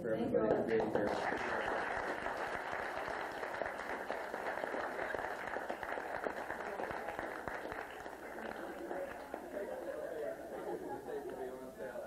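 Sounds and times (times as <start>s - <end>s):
crowd applauding: 0.7s - 10.1s.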